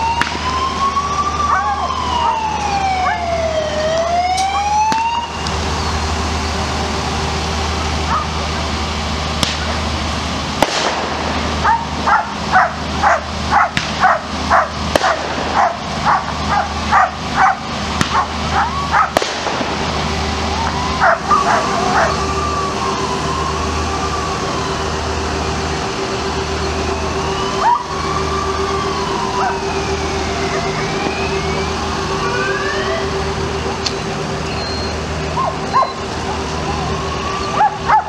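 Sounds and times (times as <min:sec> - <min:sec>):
engine hum: 0:00.0 - 0:38.0
siren wailing: 0:00.0 - 0:38.0
sharp cracks: 0:00.1 - 0:00.6, 0:09.4 - 0:09.8, 0:10.6 - 0:12.0, 0:13.7 - 0:14.2, 0:14.8 - 0:16.4, 0:17.9 - 0:18.4, 0:19.0 - 0:20.8
dogs barking: 0:03.0 - 0:03.3, 0:08.1 - 0:08.4, 0:11.6 - 0:19.2, 0:21.0 - 0:22.2, 0:29.4 - 0:29.6, 0:35.4 - 0:36.0, 0:37.5 - 0:38.0.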